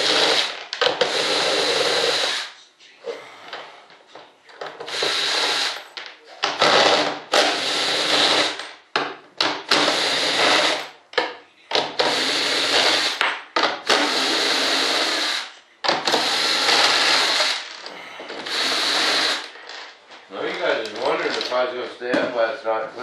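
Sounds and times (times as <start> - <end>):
cordless drill running: 0.0 - 2.6, 4.8 - 5.8, 6.6 - 8.6, 9.7 - 10.8, 12.0 - 13.2, 13.8 - 17.6, 18.3 - 19.5.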